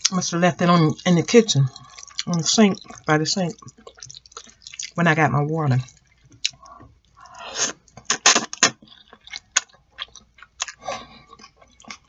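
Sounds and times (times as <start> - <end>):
person slurping noodles: 7.2 - 8.7.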